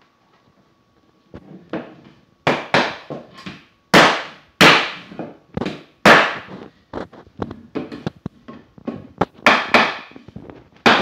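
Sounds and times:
hammer knocking on wood block: 2.5 - 3.2, 7.8 - 10.2.

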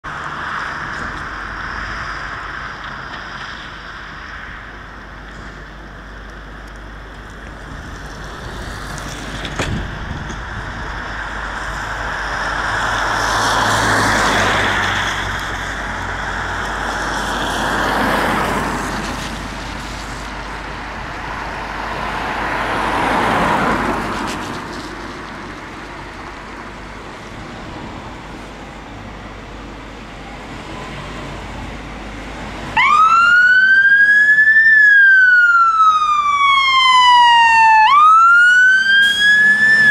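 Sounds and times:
rushing noise: 0.0 - 39.9
fire engine siren wailing: 9.9 - 24.2, 29.9 - 39.9.

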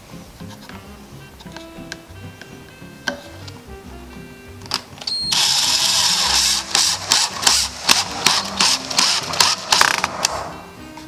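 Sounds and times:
power driver driving a screw: 4.7 - 10.4.

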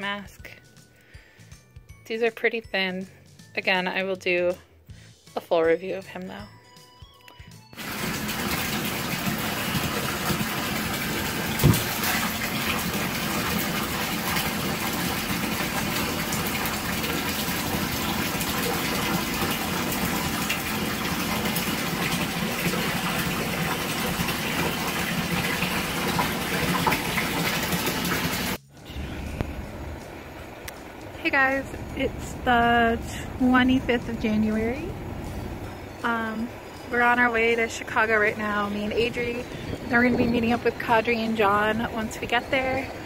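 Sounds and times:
water running into bathtub: 7.8 - 28.6
object thumping into water: 11.6 - 12.2.

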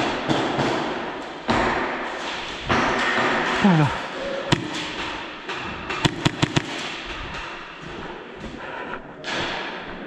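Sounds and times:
airsoft gunshots: 4.5 - 4.9, 6.0 - 6.9.

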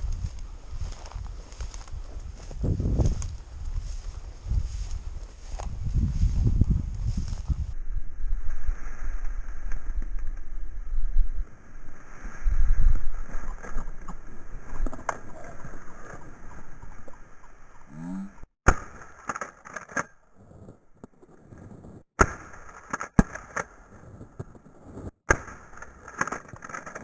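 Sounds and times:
legs brushing through dry grass: 0.0 - 7.8.

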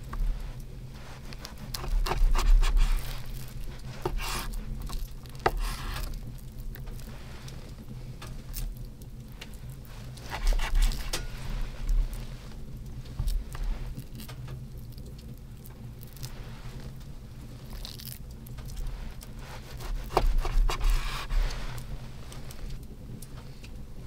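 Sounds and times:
knife scraping through meat: 1.0 - 6.2, 10.0 - 12.3, 18.7 - 22.8.

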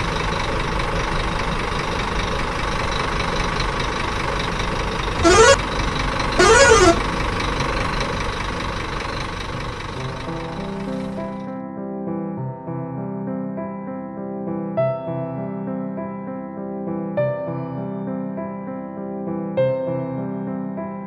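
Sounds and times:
truck horn blasts: 5.2 - 5.6, 6.4 - 7.0.

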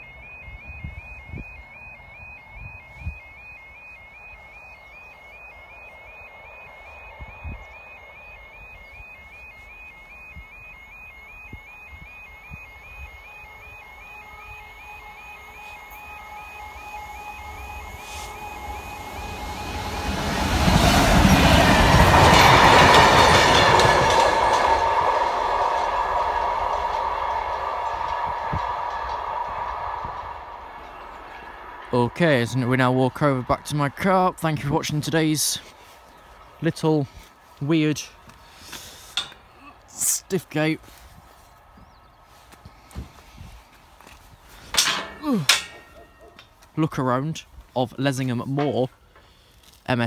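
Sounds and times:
crossing alarm two-note warble: 0.0 - 35.2, 44.8 - 47.4
locomotive engine rumble: 0.0 - 50.0
wind buffeting microphone: 5.6 - 37.4
wheels clattering over rail joints: 14.6 - 33.2, 38.7 - 40.1, 43.9 - 49.8.

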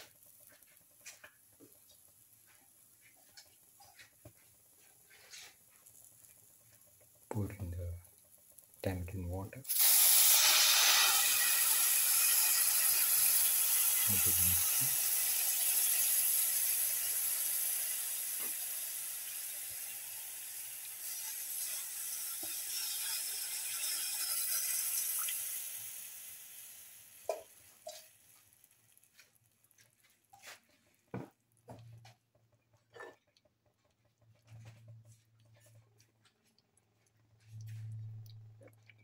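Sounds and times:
oil sizzling and hissing in pan: 0.0 - 8.9, 9.7 - 30.7.

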